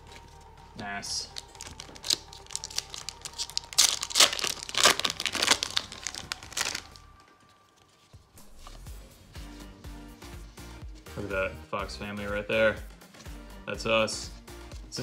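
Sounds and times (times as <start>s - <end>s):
foil wrapper tearing and crinkling: 1.3s - 7.2s.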